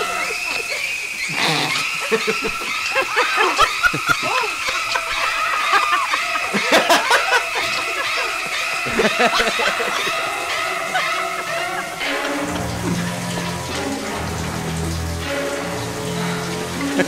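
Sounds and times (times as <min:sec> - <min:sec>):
audience laugh track: 0:00.0 - 0:14.4
screeching string notes: 0:00.0 - 0:17.0.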